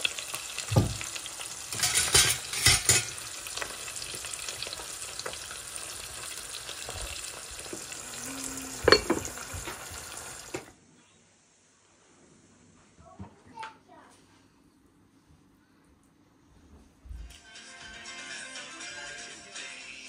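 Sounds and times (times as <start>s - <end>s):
rice sizzling in a pot: 0.0s - 10.8s.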